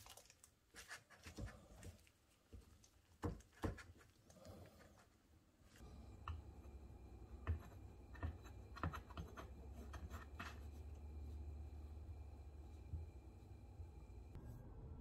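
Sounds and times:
low hum: 9.5 - 15.0.

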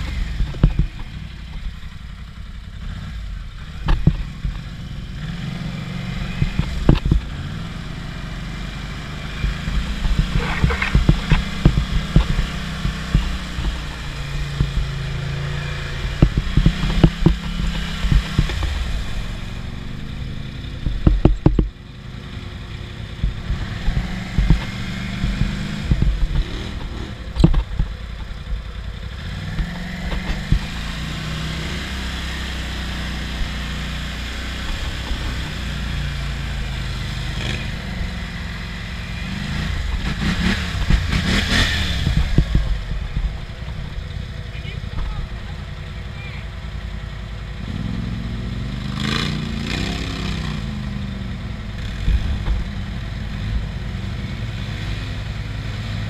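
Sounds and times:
quad bike engine revving: 2.7 - 46.6, 47.6 - 56.0
knocks and clatter: 6.4 - 7.3, 9.4 - 15.1, 16.0 - 18.9, 20.8 - 21.8, 23.2 - 28.6.

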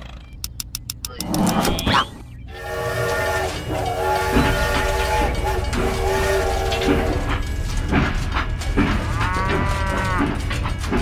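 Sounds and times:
toy train running rumble: 2.4 - 11.0
rail clacks: 2.6 - 11.0
cow mooing: 9.0 - 10.4.

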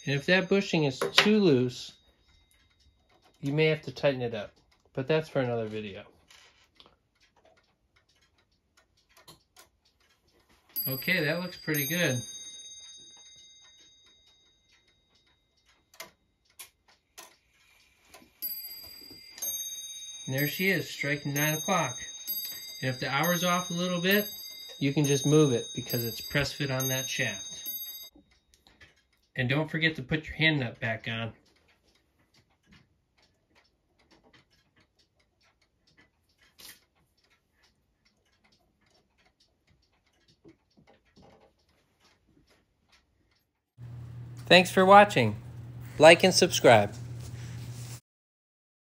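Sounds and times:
clock striking ringing stroke: 0.0 - 2.6, 10.6 - 15.4, 18.1 - 28.1, 46.0 - 47.5
clock ticking: 0.0 - 45.4
clock clicks: 0.0 - 47.2.

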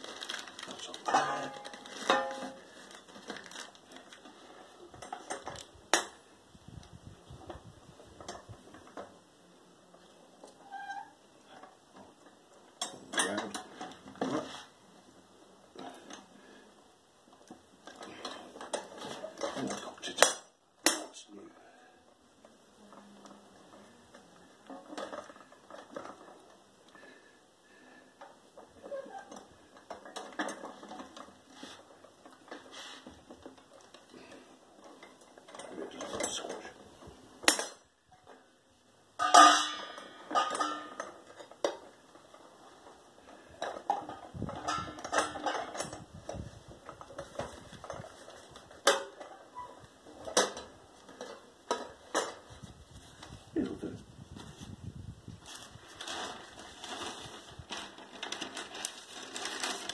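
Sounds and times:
paper and cardboard crinkling: 0.0 - 4.9, 55.4 - 59.9
metal press clinking and creaking: 0.4 - 3.5, 4.2 - 6.2, 10.4 - 14.5, 17.8 - 21.2, 28.2 - 36.8, 37.4 - 38.5, 39.2 - 52.6.

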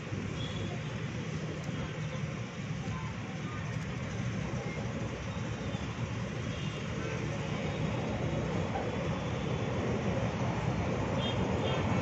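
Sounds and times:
low rumbling background noise: 0.0 - 12.0.

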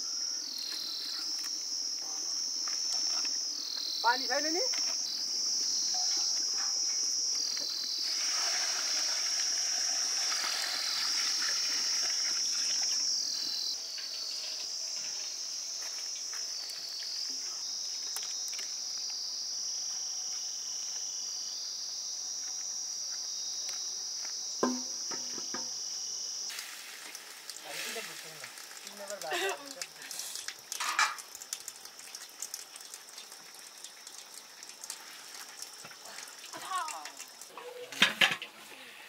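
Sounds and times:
soft hiss: 0.0 - 21.7, 24.4 - 39.0
insect chorus chirring: 0.0 - 39.0
sharp knock: 24.6 - 25.8.

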